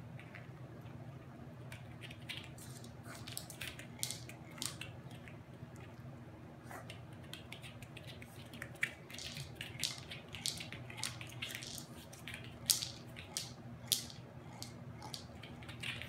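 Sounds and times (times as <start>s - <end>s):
kibble rattling in a toy: 1.8s - 5.3s, 7.3s - 16.0s.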